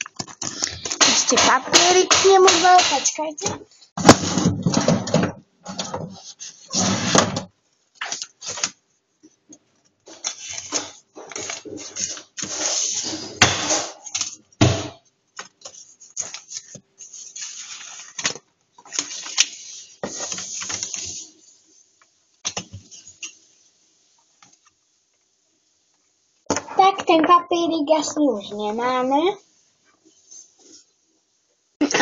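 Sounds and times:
rustling papers: 0.0s - 1.3s, 5.7s - 7.2s, 7.9s - 13.2s, 15.3s - 23.2s.

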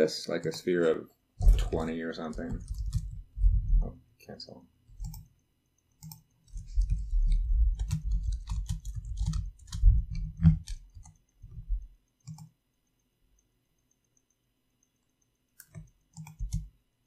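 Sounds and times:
computer keyboard typing: 1.4s - 3.6s, 4.9s - 12.6s, 14.9s - 16.8s.

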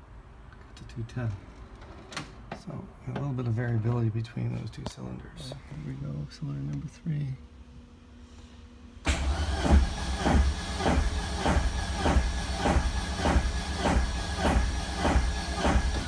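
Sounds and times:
starter motor cranking engine: 9.1s - 16.0s.

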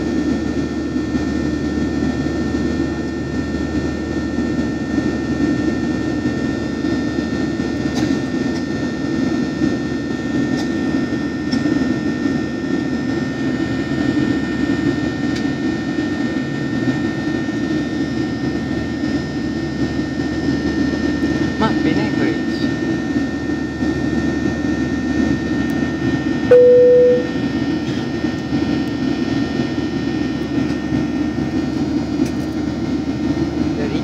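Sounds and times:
high engine whine: 21.8s - 34.0s.

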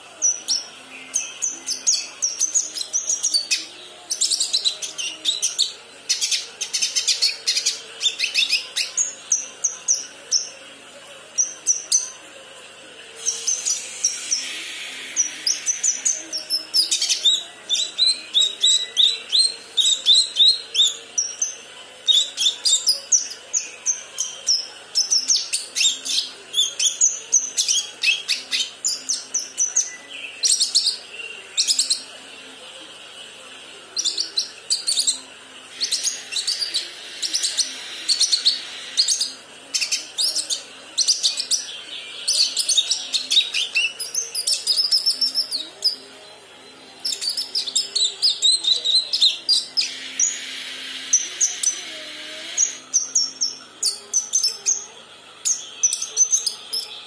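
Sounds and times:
bird chirping and twittering: 13.2s - 32.2s, 33.9s - 46.0s, 47.0s - 57.0s.

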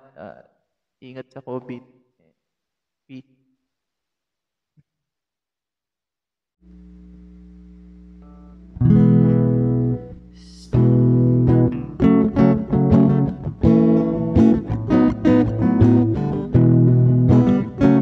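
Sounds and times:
acoustic guitar strumming: 8.2s - 18.0s.

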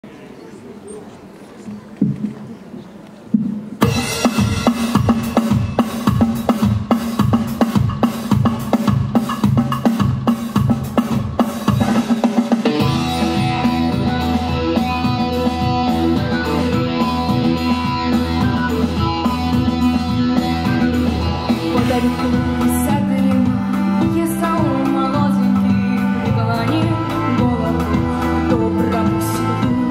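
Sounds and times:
drum kit beat: 3.4s - 29.9s
bass line: 3.8s - 29.9s.

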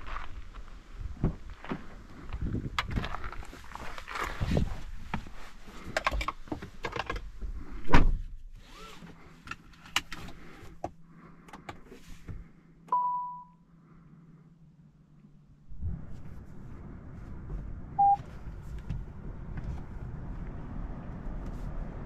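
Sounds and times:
clicks and knocks inside car: 5.0s - 8.3s
faint steady hum: 9.0s - 18.3s.

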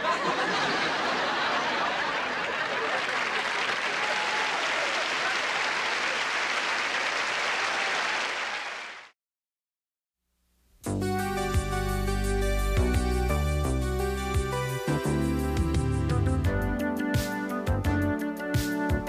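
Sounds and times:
studio audience applauding: 0.0s - 9.1s.

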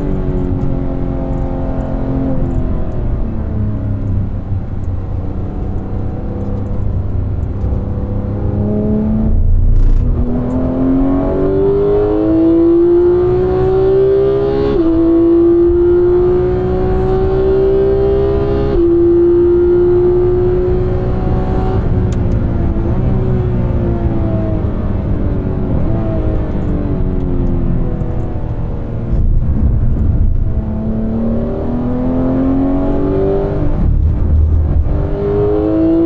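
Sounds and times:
car engine accelerating: 0.0s - 36.0s.

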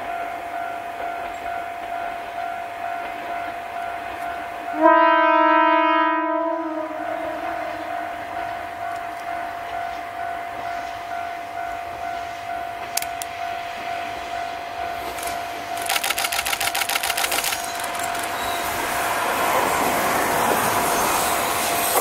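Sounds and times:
diesel railcars approaching: 0.0s - 22.0s
rapid sharp clicks: 15.1s - 18.4s.

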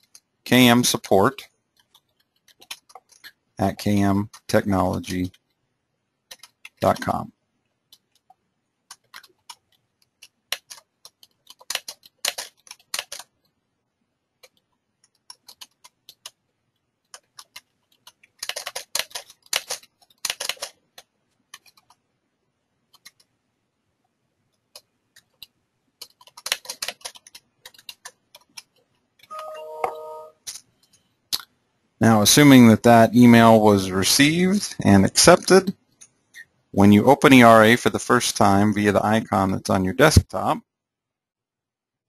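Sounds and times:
computer keyboard typing: 1.7s - 5.5s, 6.2s - 7.2s, 7.9s - 13.6s, 14.4s - 16.4s, 17.0s - 22.0s, 22.9s - 23.3s, 24.7s - 30.0s.

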